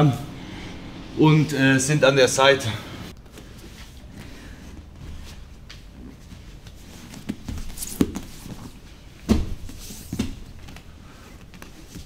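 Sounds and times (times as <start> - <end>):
bodies thumping on a mat: 7.0 - 10.8.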